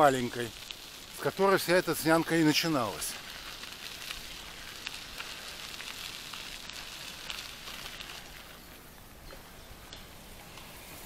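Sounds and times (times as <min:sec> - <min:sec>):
bike tyres crunching on gravel: 0:00.0 - 0:11.0.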